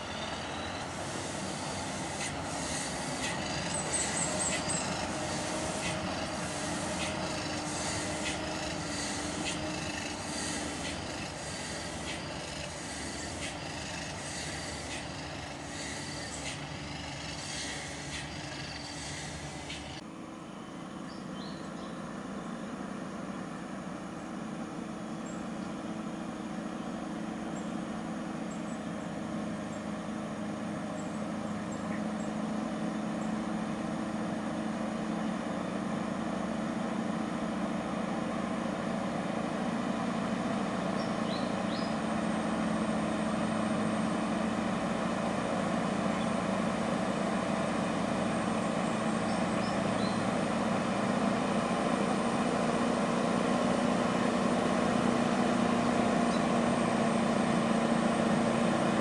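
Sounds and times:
truck diesel engine droning: 0.0 - 59.0.

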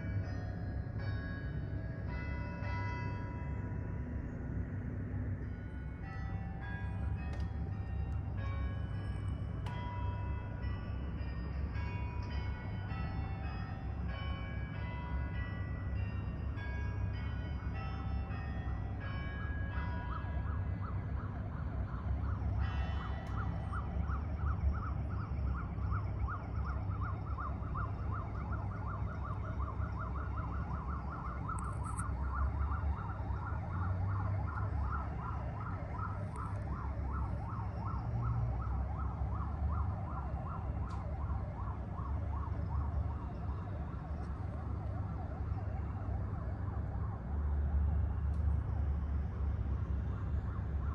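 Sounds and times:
church bells tolling: 0.0 - 4.2, 5.6 - 20.4, 22.6 - 23.6
low traffic rumble: 0.0 - 50.9
sirens warbling: 18.7 - 50.9.

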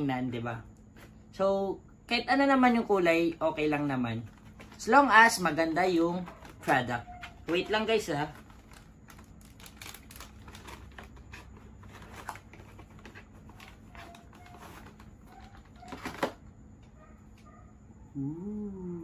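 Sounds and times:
packaging crinkle: 8.0 - 16.4
packaging rustling and clicking: 8.3 - 16.4.

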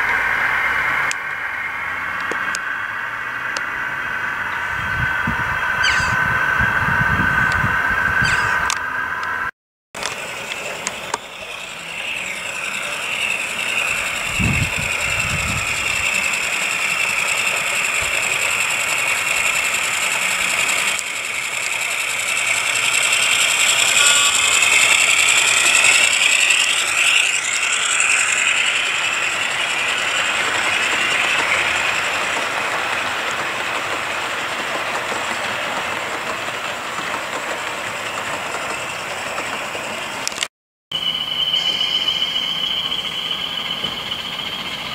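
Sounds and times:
model locomotive engine sound: 0.0 - 44.9
wheels running on track: 0.0 - 44.9.

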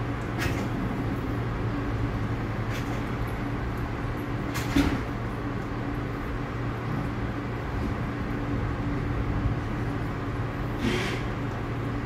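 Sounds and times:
train equipment hum: 0.0 - 12.0
short burst of hiss: 10.8 - 11.3.

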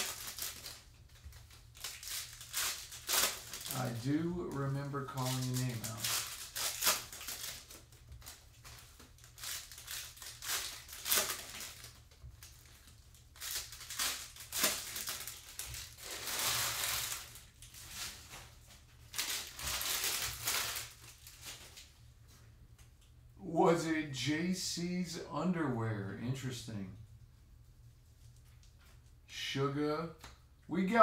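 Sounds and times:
foil wrappers crinkling and tearing: 0.0 - 21.9.

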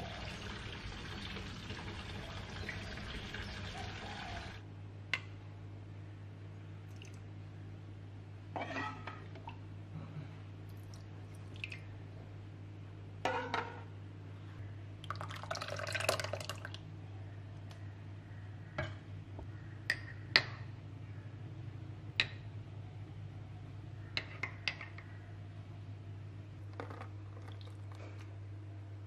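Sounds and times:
milk pouring into a bowl: 0.0 - 4.6, 15.1 - 16.8, 26.8 - 28.2
low steady hum: 0.0 - 29.0.

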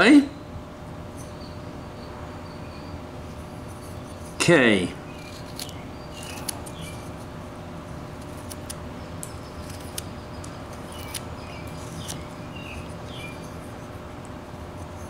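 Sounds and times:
low background hum: 0.0 - 15.0
knife cutting wood: 5.2 - 7.1, 9.6 - 12.9.

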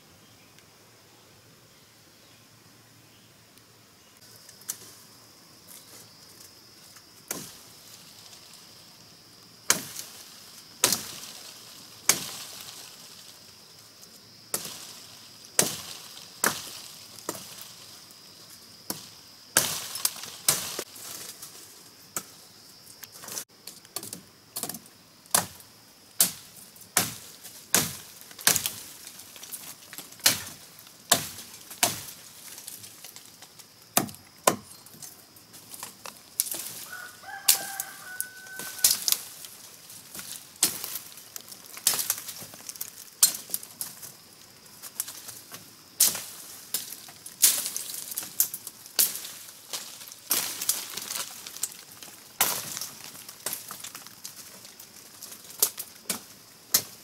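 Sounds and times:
hand tool striking wood: 34.0 - 34.7.

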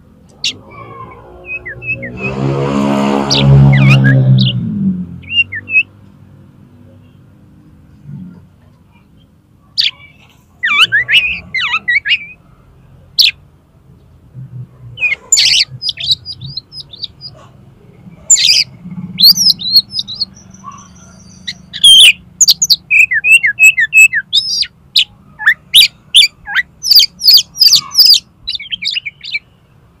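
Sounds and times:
bird singing sharp whistles: 19.2 - 24.7.

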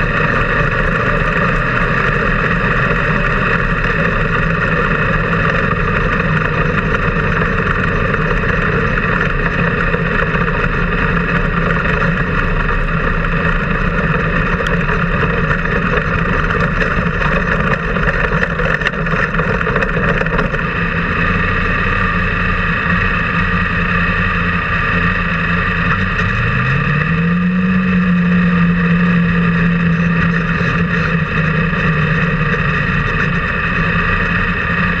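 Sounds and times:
race car engine running: 0.0 - 35.0.

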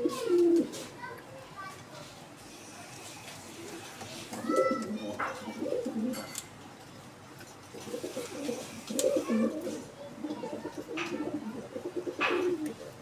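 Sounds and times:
pigeons cooing: 0.0 - 0.8, 4.4 - 6.4, 7.7 - 13.0.

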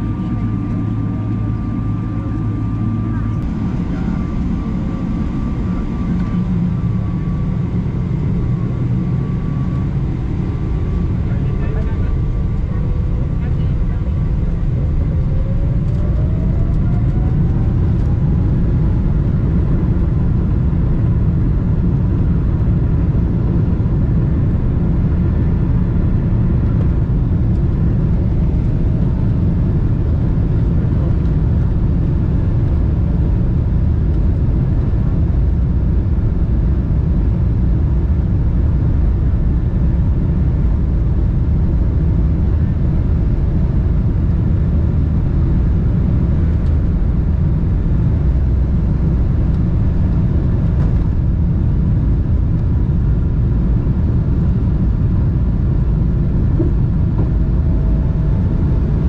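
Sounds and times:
jet engine whine rising: 0.0 - 37.6
takeoff roll rumble: 0.0 - 59.0.

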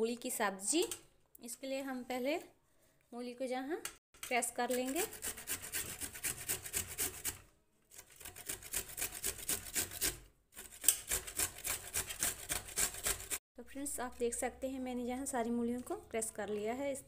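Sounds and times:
radish grated on metal grater: 4.3 - 13.4.

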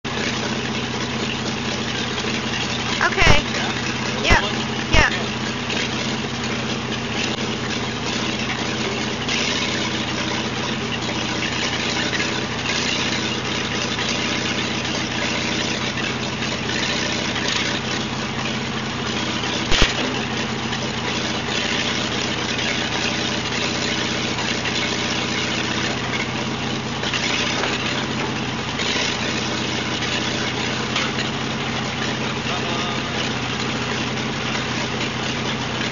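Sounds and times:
backhoe engine running: 0.0 - 35.9
sharp knock: 19.7 - 20.2.

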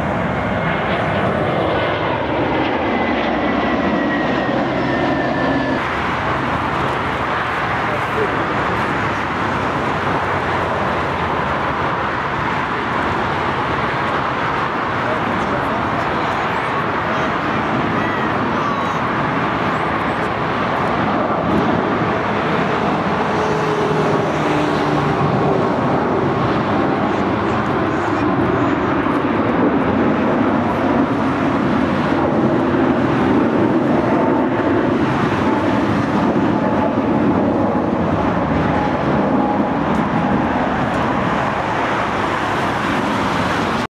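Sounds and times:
jet engine roar: 0.0 - 43.9.

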